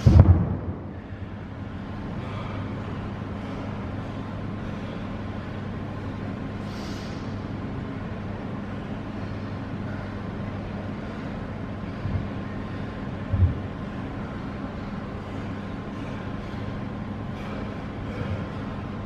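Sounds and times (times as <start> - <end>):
low thump: 0.0 - 0.9
low mechanical hum: 0.0 - 19.0.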